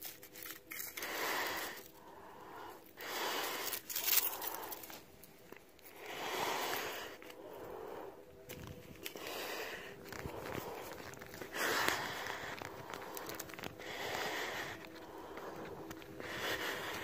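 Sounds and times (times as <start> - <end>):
small crunches and clicks: 0.0 - 7.7, 8.3 - 17.0
person breathing: 0.4 - 17.0
footsteps on burnt ground: 3.0 - 17.0.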